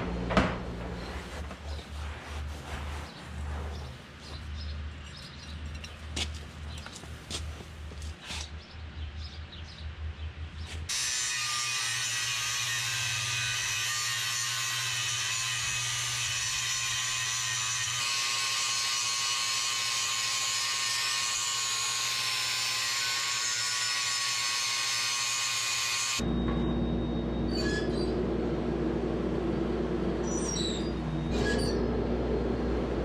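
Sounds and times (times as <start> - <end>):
angle grinder cutting steel: 10.9 - 26.2.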